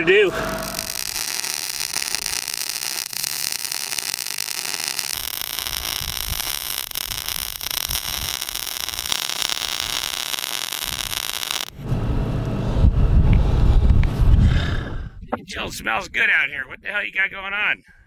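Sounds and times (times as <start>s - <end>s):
welding arc hissing: 0.4s - 11.7s.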